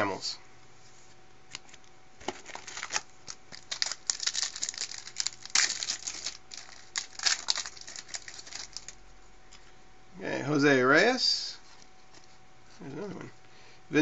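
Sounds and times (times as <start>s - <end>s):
wrapper crinkling and tearing: 1.5s - 9.0s.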